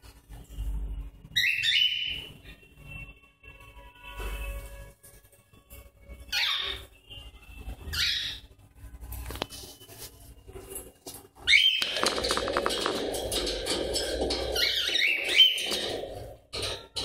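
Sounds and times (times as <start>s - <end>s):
parrots squawking: 6.3s - 6.9s, 7.9s - 8.4s
birds scuffling: 9.0s - 16.6s.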